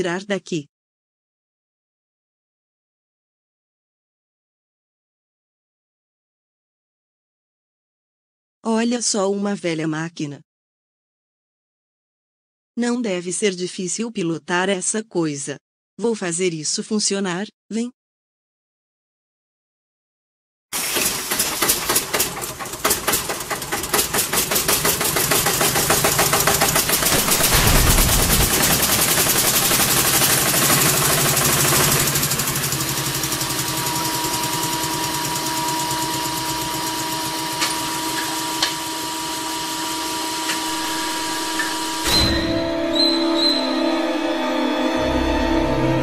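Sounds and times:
old motor sputtering and running: 20.8s - 42.0s.

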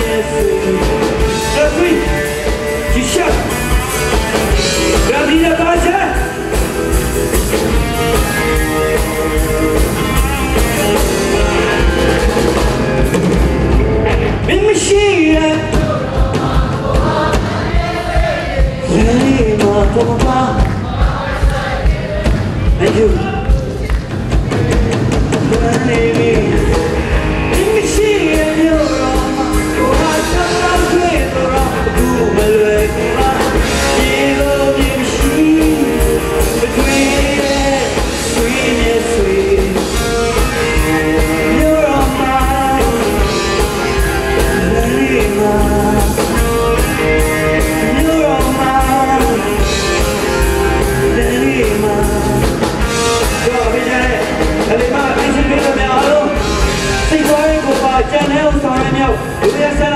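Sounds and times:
electric guitar: 0.0s - 16.0s, 22.4s - 59.9s
bass guitar: 0.0s - 59.9s
drum kit: 0.0s - 59.9s
man singing lead vocals: 0.0s - 59.9s
keyboard: 21.8s - 59.9s.

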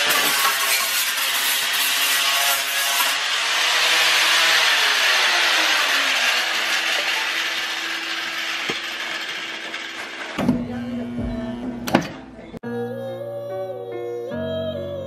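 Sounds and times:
angle grinder grinding steel: 0.0s - 11.2s
motor spinning down with whine: 3.2s - 11.8s.

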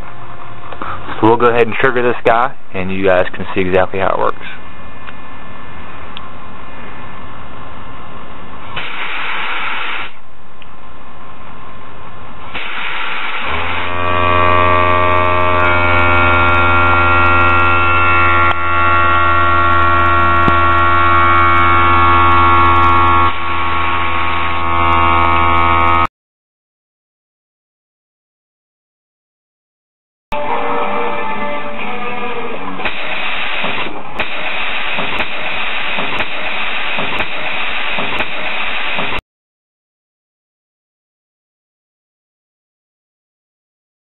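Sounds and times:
compressed air hissing blasts: 8.8s - 10.2s, 12.5s - 13.9s, 32.8s - 39.2s
loud machine hum: 12.4s - 26.1s.

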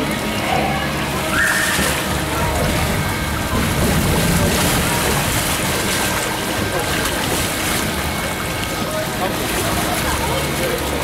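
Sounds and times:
water sloshing and splashing: 0.0s - 11.0s
brief high squeak: 1.3s - 2.0s.

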